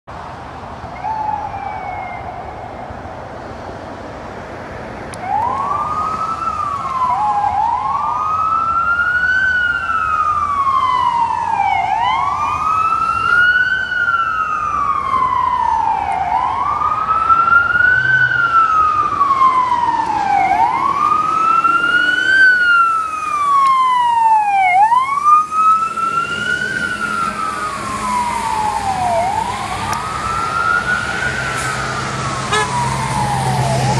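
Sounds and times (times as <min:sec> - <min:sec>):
fire engine siren wailing: 0:00.9 - 0:03.6, 0:05.1 - 0:33.9.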